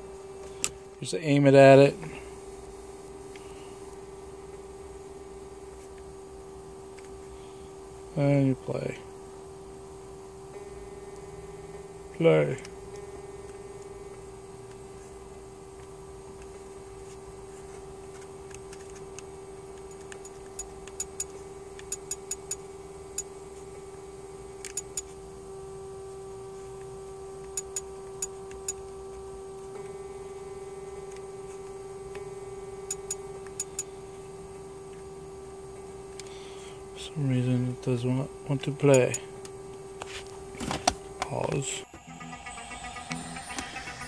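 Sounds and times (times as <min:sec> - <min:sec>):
steady electrical hum: 0:00.0 - 0:44.0.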